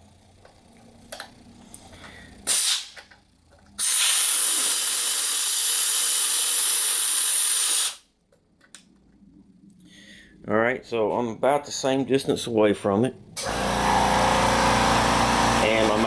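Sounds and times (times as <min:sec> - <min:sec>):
compressed air hissing: 0:02.0 - 0:03.0, 0:03.8 - 0:08.0.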